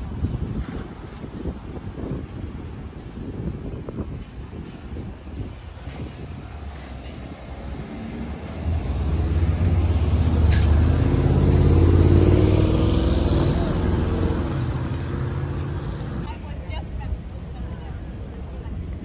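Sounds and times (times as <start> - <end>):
vehicle engine driving past: 7.0 - 16.3.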